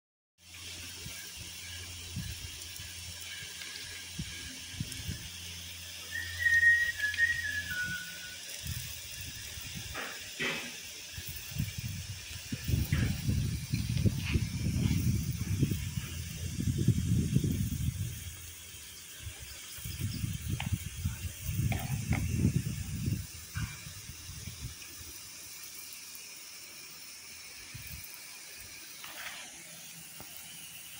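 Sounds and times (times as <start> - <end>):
sprinkler spraying water: 0.4 - 30.9
high whistle falling in pitch: 6.0 - 8.5
low rumbling: 11.6 - 18.6.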